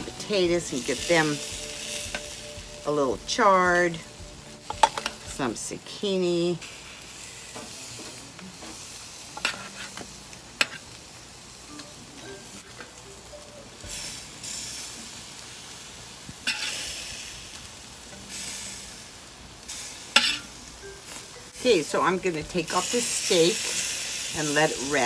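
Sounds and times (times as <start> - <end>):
vegetables sizzling on grill: 0.0 - 25.0
tongs clicking on metal grate: 16.4 - 16.8, 20.1 - 20.5.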